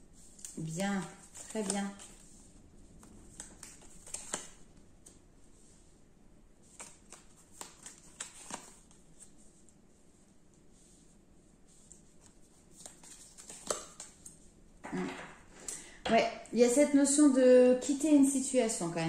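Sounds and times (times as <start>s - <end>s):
cards being shuffled: 0.2s - 5.7s, 6.6s - 9.8s, 11.7s - 15.7s.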